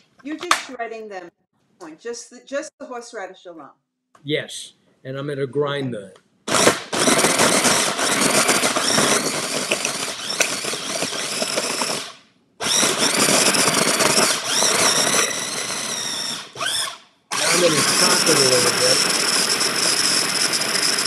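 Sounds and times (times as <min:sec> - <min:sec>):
food processor grinding: 0:06.5 - 0:21.0.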